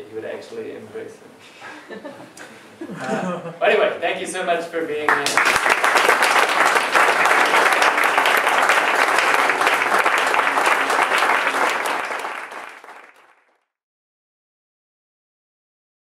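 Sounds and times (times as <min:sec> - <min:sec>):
small audience applauding: 0:05.1 - 0:13.7.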